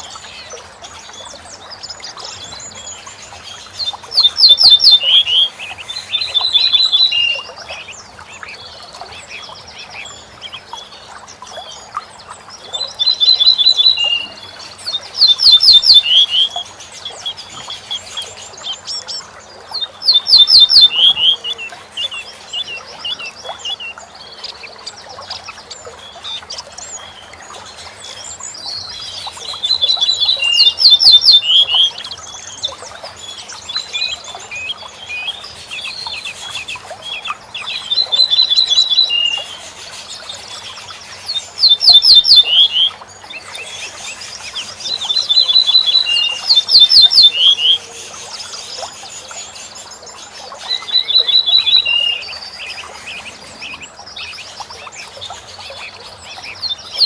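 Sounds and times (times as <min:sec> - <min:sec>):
small birds chirping: 0:00.0 - 0:57.0
bunting singing: 0:02.3 - 0:11.0, 0:12.9 - 0:24.7, 0:28.8 - 0:32.6, 0:41.1 - 0:48.8.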